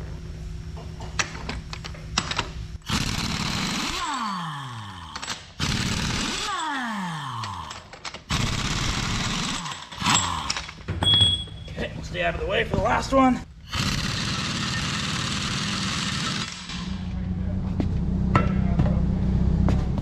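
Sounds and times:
pneumatic impact wrench hammering: 0:02.2 - 0:04.3, 0:05.1 - 0:06.6, 0:07.6 - 0:11.2, 0:13.7 - 0:17.0.

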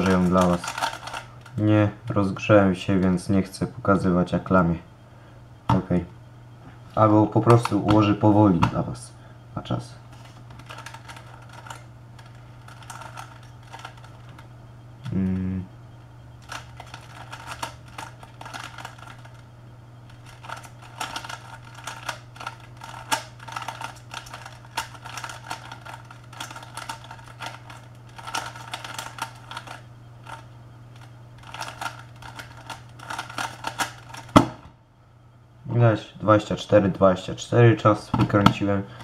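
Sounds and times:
puzzle cube clicking: 0:00.0 - 0:01.3, 0:16.5 - 0:19.4, 0:20.2 - 0:30.4, 0:31.4 - 0:34.5
steady low hum: 0:00.0 - 0:39.0.

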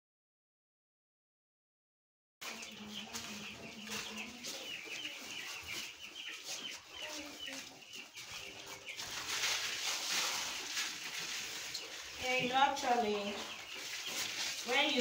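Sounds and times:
chicks peeping: 0:02.4 - 0:15.0
sawdust rustling: 0:08.4 - 0:15.0.

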